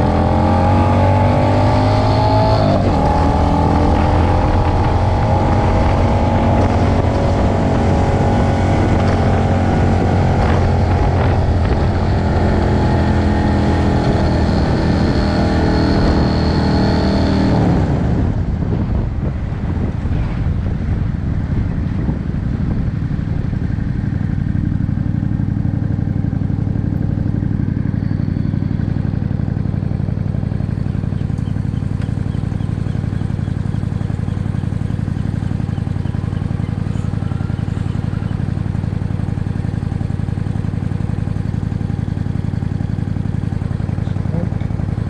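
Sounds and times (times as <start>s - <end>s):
motorcycle engine running: 0.0s - 45.0s
wind rushing: 1.7s - 23.6s.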